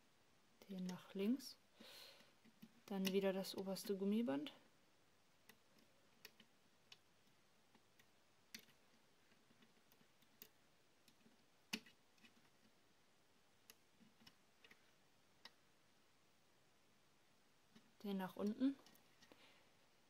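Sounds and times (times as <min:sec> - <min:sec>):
crochet hook clicking on plastic pegs: 0:02.2 - 0:04.0, 0:05.4 - 0:12.7.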